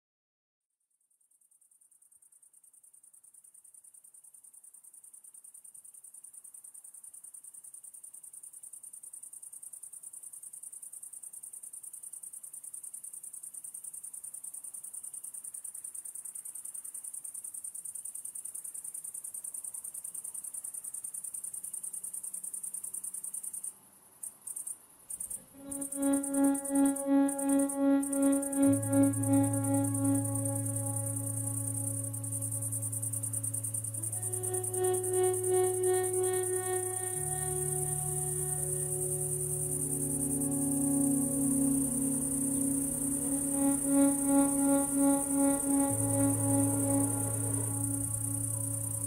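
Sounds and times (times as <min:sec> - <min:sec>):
insect trilling: 0:25.2 - 0:49.0
soft music: 0:25.4 - 0:49.0.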